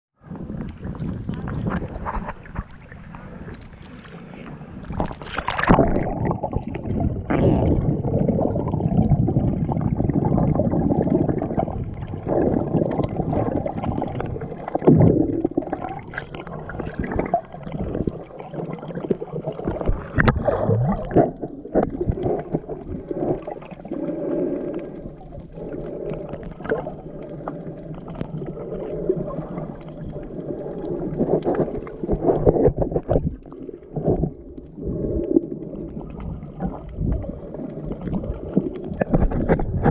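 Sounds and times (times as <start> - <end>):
underwater sloshing and bubbling: 0.2 - 39.9
underwater knocks: 38.9 - 39.9.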